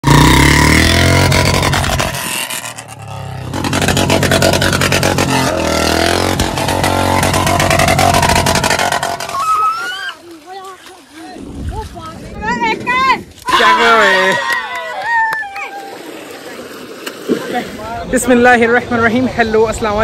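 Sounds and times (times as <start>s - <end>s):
motorcycle engine revving: 0.0s - 9.4s.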